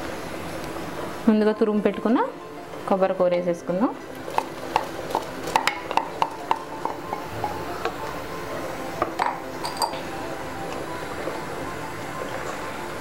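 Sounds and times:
boiling water hissing: 0:00.0 - 0:13.0
spatula tapping a metal pot: 0:05.5 - 0:08.0.

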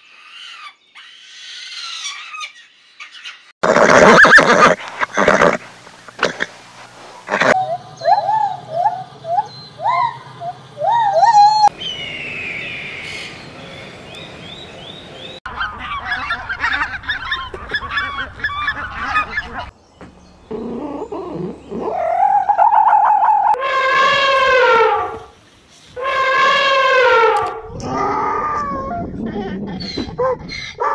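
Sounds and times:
gibbons hooting: 0:07.3 - 0:11.7, 0:20.5 - 0:25.3
long rising animal call: 0:07.3 - 0:11.7
geese honking: 0:14.2 - 0:19.7.

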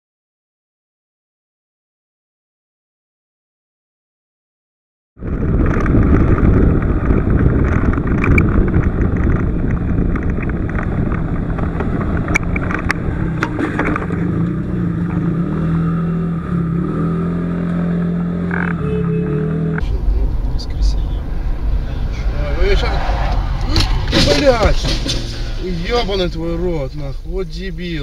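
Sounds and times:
engine and road noise rumble: 0:05.2 - 0:28.0
sharp knocks: 0:23.6 - 0:25.6.

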